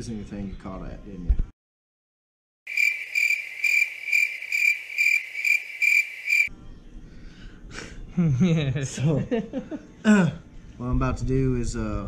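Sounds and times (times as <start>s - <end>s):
crickets chirping: 2.7s - 6.5s.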